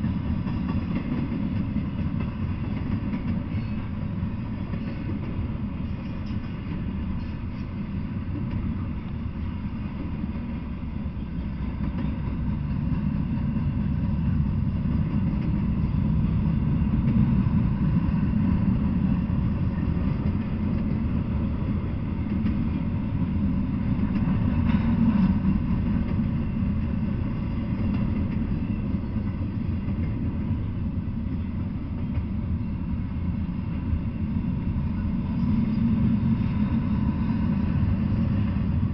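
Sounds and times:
freight train wheels rumbling: 0.0 - 38.9.

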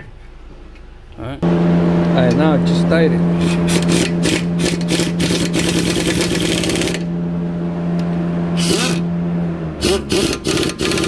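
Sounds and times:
impact wrench rattling: 3.4 - 7.1, 9.8 - 11.0.

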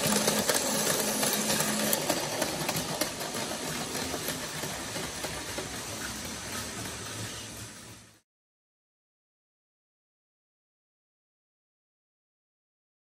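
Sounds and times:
small electric motors whirring: 0.0 - 7.6
patter of clicking toy wheels: 0.0 - 8.2.

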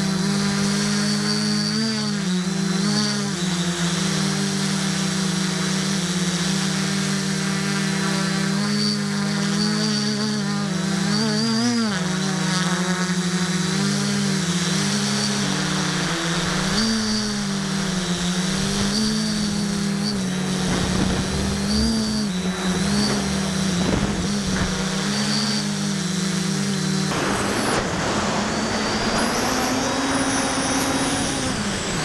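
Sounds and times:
drone propellers buzzing: 0.0 - 32.0
gusty wind on microphone: 20.5 - 25.1.

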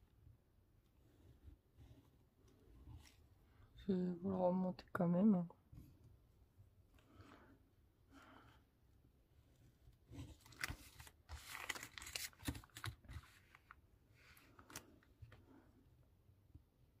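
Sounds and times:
cardstock rustling and sliding: 10.0 - 15.0.

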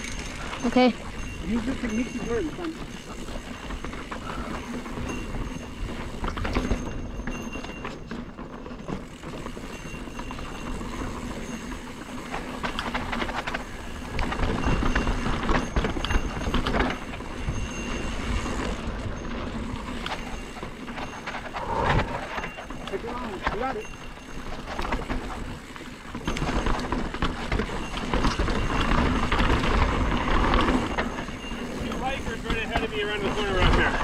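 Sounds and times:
bike rattles and clicks: 0.0 - 34.0
tyres on dirt: 0.0 - 34.0
wind rumble on microphone: 12.7 - 34.0.

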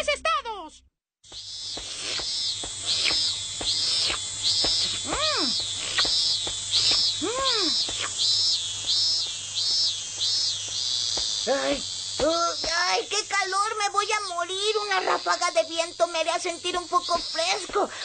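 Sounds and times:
rising and falling calls: 1.3 - 13.2
cicadas buzzing: 1.3 - 18.0.

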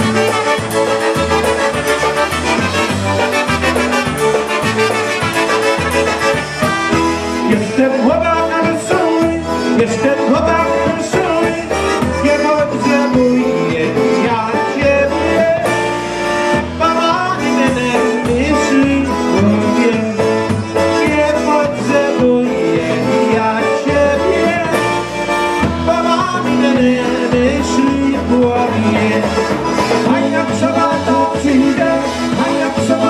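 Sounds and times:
polka band playing: 0.0 - 33.0
pulsing bass line: 0.0 - 33.0
man singing into microphone: 7.4 - 25.1, 25.7 - 33.0.

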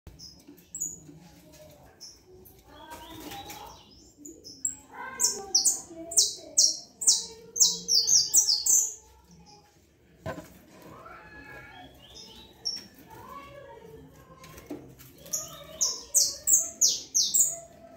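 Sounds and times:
finch singing chirps: 2.0 - 9.0, 15.2 - 17.7
soft knock: 10.2 - 10.5.

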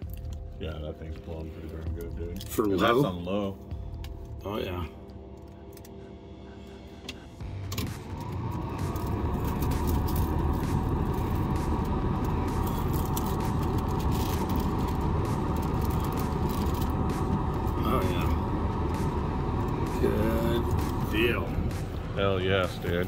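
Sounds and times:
blower motor whine: 3.6 - 23.0
air rushing from vents: 7.9 - 23.0.

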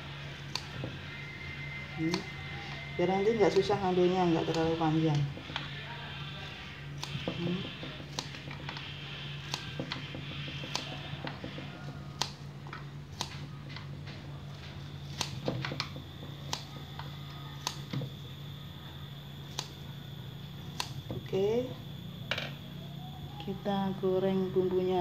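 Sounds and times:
steady low hum: 0.0 - 25.0
scissors snipping leaves: 0.3 - 1.2, 1.8 - 5.8, 6.4 - 18.6, 19.3 - 19.9, 20.5 - 21.6.

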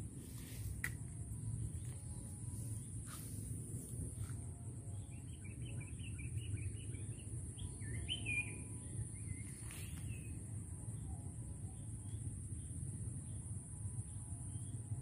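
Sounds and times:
steady low rumble: 0.0 - 15.0
bird chirping: 4.9 - 10.3.

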